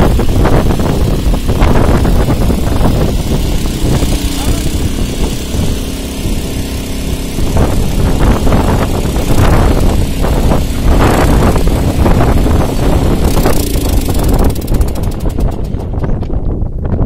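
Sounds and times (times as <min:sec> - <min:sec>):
gas torch roaring: 0:00.0 - 0:16.5.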